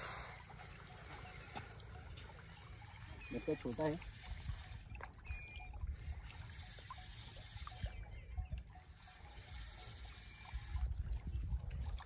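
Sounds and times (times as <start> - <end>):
water lapping at rocky shore: 0.0 - 12.0
fishing reel clicking: 2.8 - 8.1, 8.7 - 10.9.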